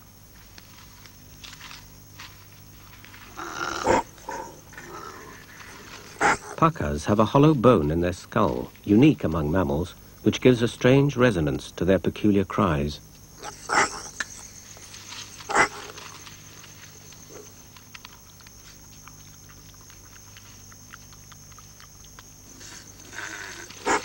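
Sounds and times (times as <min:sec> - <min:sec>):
animal cries: 0:03.3 - 0:06.6, 0:13.4 - 0:14.4, 0:15.5 - 0:16.1, 0:22.4 - 0:24.0.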